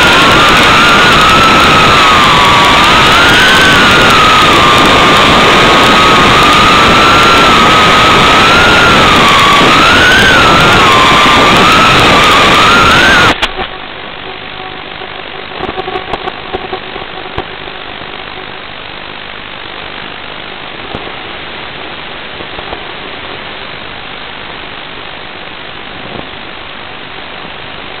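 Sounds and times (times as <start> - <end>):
steady static hiss: 0.0 - 28.0.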